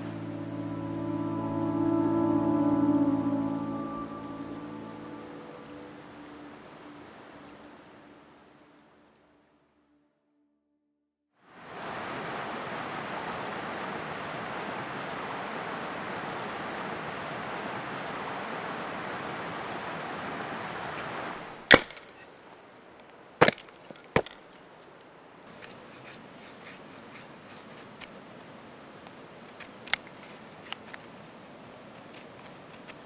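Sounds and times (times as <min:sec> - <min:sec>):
river rapids rushing over rocks: 0:11.5 - 0:21.8
wood cracking: 0:21.7 - 0:22.2, 0:23.4 - 0:24.6.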